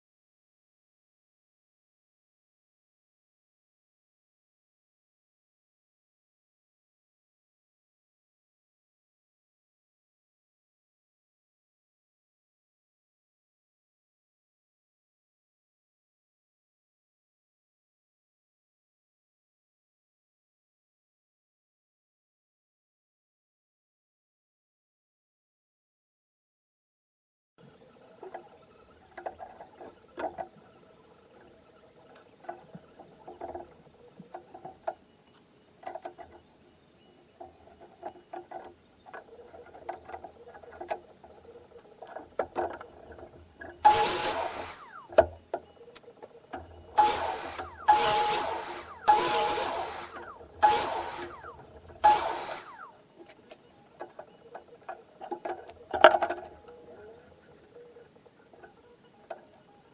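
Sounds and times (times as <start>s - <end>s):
wood and tools clicking: 28.2s - 36.4s, 37.2s - 59.8s
power saw cutting wood: 43.8s - 45.1s, 46.8s - 52.9s.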